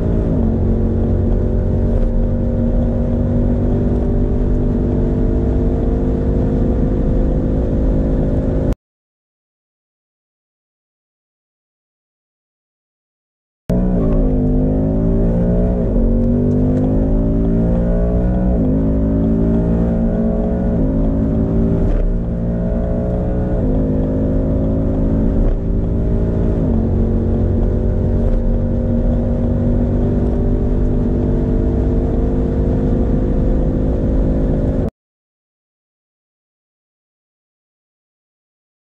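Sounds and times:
car engine accelerating hard: 0:00.0 - 0:08.8, 0:13.7 - 0:34.9.

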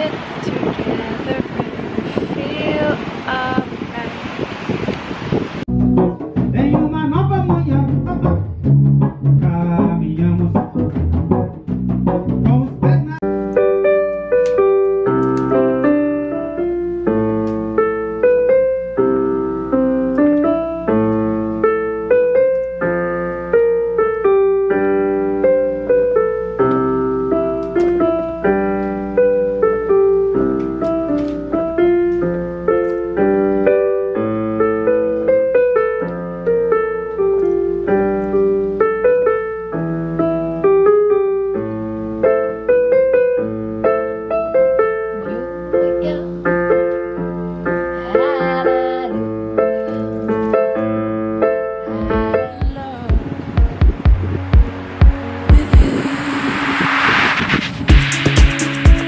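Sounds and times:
band with bass and hand drums: 0:05.7 - 0:13.2, 0:52.0 - 0:55.9, 0:57.9 - 0:59.0
solo piano on electronic keyboard: 0:13.1 - 0:56.0.

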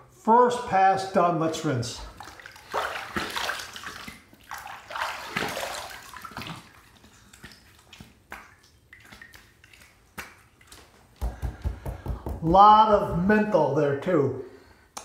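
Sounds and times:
water splashing on face: 0:02.0 - 0:11.9.

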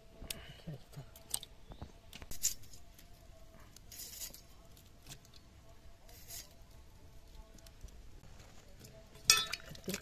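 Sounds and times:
potato scraping against blade: 0:03.7 - 0:05.4, 0:06.0 - 0:06.7.

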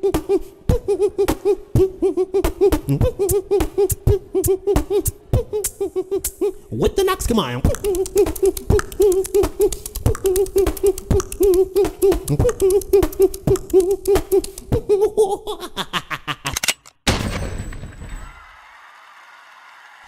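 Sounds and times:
beatboxing mouth clicks: 0:00.0 - 0:15.4.

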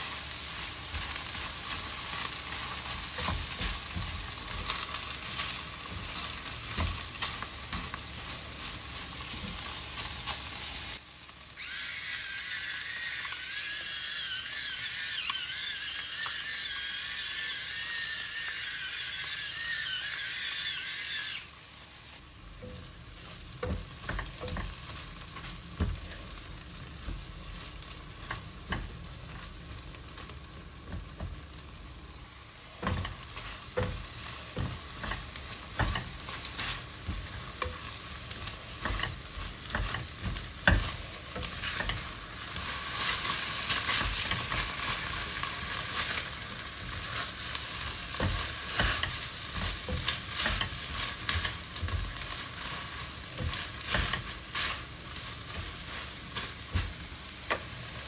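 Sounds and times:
meat and egg sizzling in a wok: 0:00.0 - 0:58.0
spatula scraping a pan: 0:32.8 - 0:58.0.

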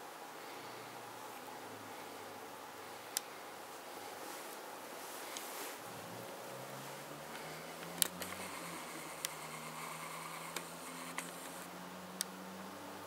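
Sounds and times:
sharp clicks: 0:07.8 - 0:12.3.

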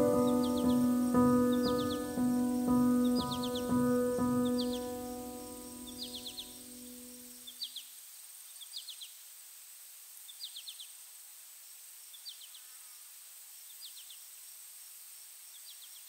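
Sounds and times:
music note: 0:00.0 - 0:06.4
steady hiss: 0:00.0 - 0:16.0.

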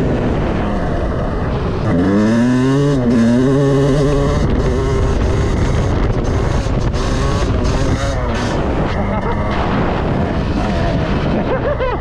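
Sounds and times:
two-stroke engine revving hard: 0:01.8 - 0:11.9.

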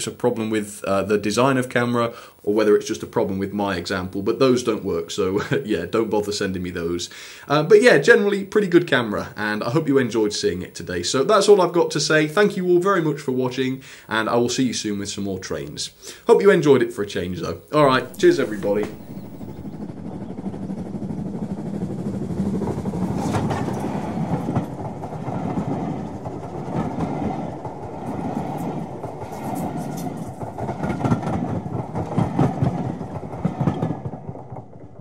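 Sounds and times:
train coaches rumbling past: 0:17.2 - 0:35.0
wheels clicking over rail joints: 0:17.9 - 0:35.0.

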